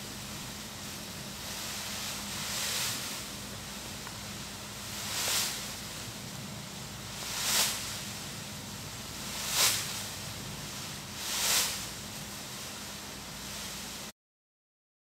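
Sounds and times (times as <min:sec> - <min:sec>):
steady low hum: 0:00.0 - 0:14.1
plastic costume swishing: 0:01.4 - 0:06.1, 0:07.0 - 0:14.1.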